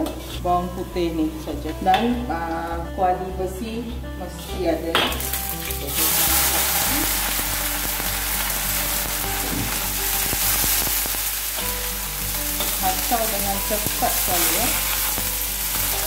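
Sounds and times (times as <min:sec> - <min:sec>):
sizzling in hot oil: 0:05.1 - 0:16.0.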